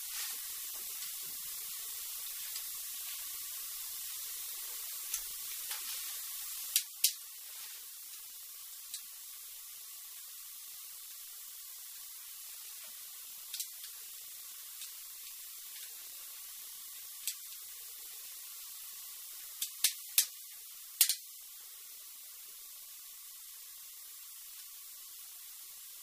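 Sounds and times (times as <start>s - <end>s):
steady high hiss: 0.0s - 26.0s.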